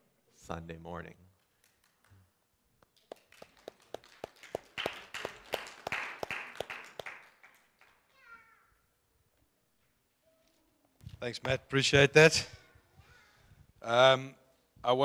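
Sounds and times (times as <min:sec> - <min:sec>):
room of people clapping: 0:01.4 - 0:08.5
hand claps close by: 0:01.6 - 0:02.2, 0:02.8 - 0:08.1.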